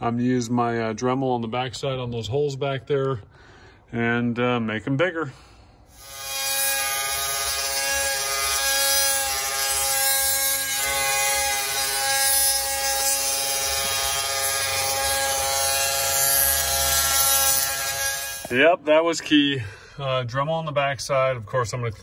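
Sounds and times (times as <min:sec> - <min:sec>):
rotary tool grinding metal: 0:05.9 - 0:18.6.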